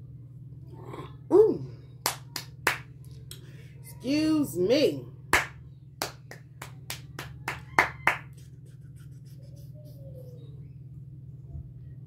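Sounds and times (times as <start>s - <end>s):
hands clapping: 2.0s - 3.4s, 5.3s - 8.5s.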